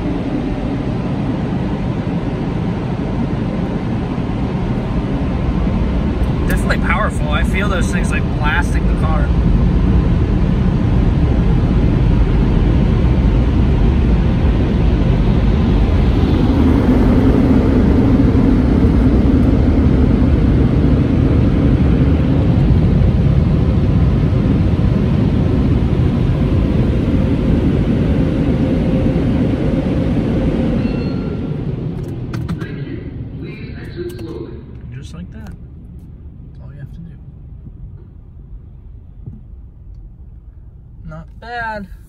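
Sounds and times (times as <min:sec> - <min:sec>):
dryer blowers rushing air: 0:00.0 - 0:35.4
deep hum: 0:00.0 - 0:42.0
deep rumble: 0:00.0 - 0:42.0.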